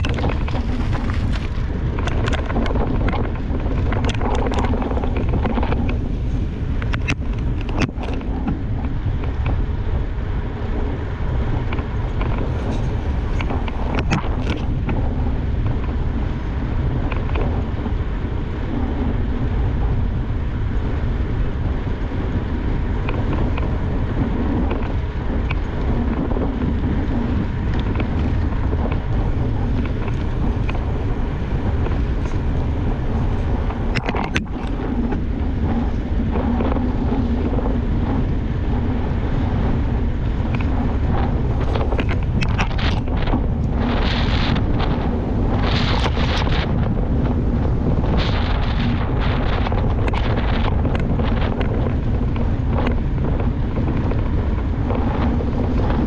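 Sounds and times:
bike tyres rolling on asphalt: 0:00.0 - 0:56.0
wind on microphone: 0:00.0 - 0:56.0
sharp ticks from bike: 0:23.0 - 0:56.0.

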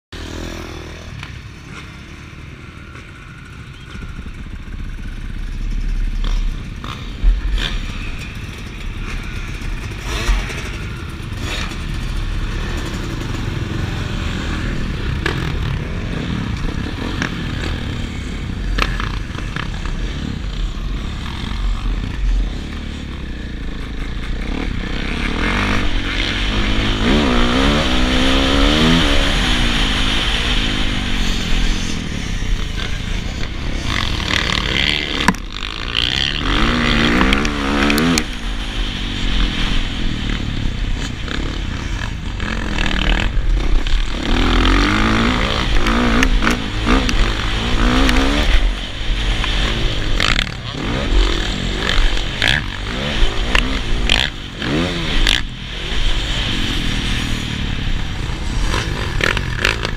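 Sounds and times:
dirt bike engines idling: 0:00.2 - 0:59.9
dirt bike revving and accelerating: 0:00.2 - 0:59.9.

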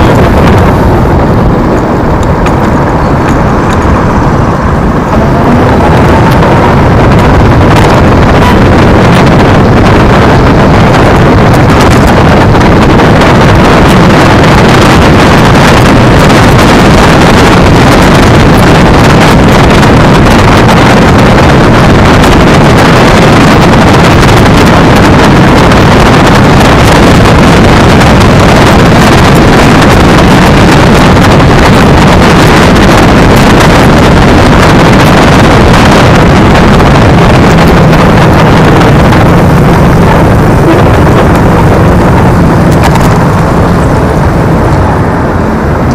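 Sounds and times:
tyres rumbling on asphalt: 0:00.0 - 0:45.9
wind buffeting microphone: 0:00.0 - 0:45.9.

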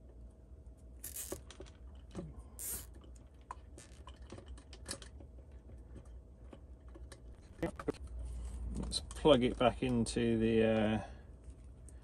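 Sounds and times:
cable tie zip: 0:01.0 - 0:01.5, 0:02.6 - 0:02.9.

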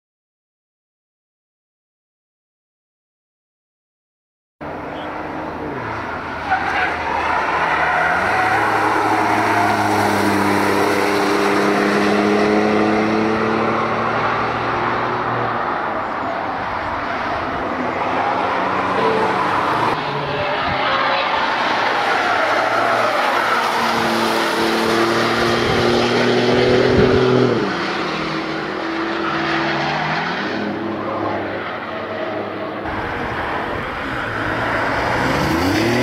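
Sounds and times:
sports car engine accelerating: 0:04.6 - 0:15.5, 0:23.5 - 0:31.7, 0:32.8 - 0:36.0
tyre noise on tarmac: 0:04.9 - 0:36.0.

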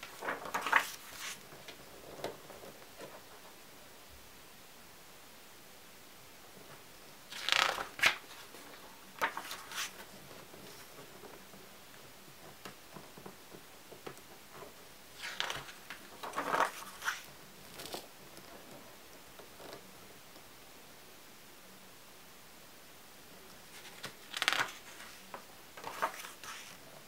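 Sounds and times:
album page turning: 0:00.0 - 0:03.4, 0:07.3 - 0:11.5, 0:15.2 - 0:18.1, 0:23.6 - 0:26.8
soft handling noises: 0:23.5 - 0:27.0.

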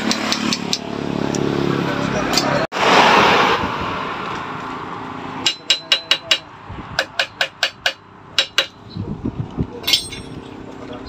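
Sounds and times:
metal-on-metal taps: 0:05.4 - 0:08.8.

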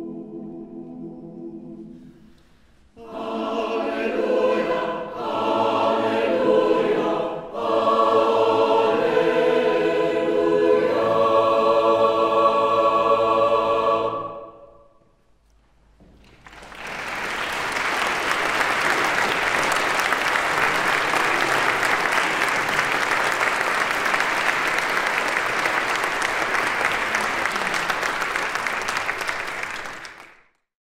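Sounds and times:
audience applause: 0:16.1 - 0:30.5.

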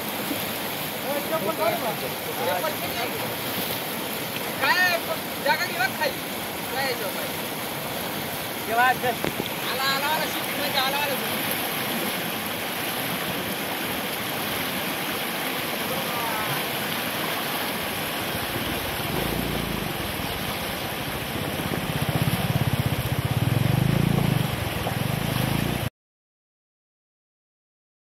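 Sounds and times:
floodwater rushing over rocks: 0:00.0 - 0:25.9
low rumble: 0:18.4 - 0:24.7.

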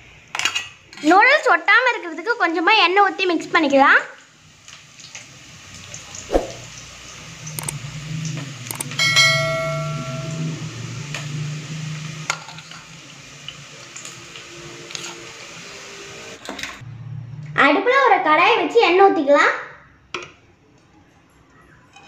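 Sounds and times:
spoon clanging on steel: 0:08.9 - 0:10.6.

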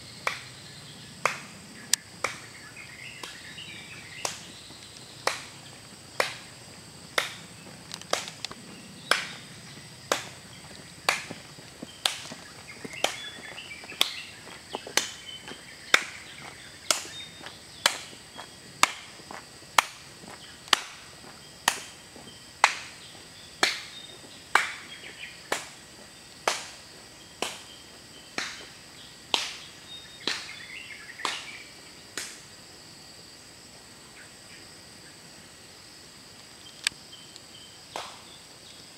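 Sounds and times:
high-pitched insect drone: 0:00.0 - 0:38.9
sharp regular clicks: 0:07.1 - 0:09.3.

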